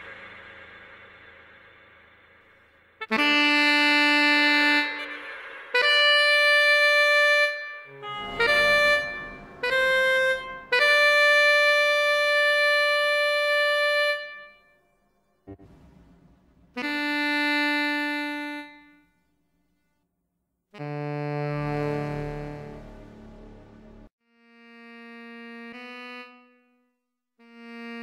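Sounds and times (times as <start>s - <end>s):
single-reed woodwind melody: 3.0s - 14.8s, 16.8s - 19.1s.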